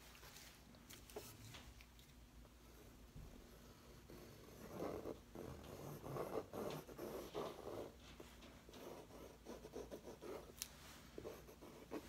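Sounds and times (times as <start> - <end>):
wax marker scribbling on canvas: 4.1 - 8.0.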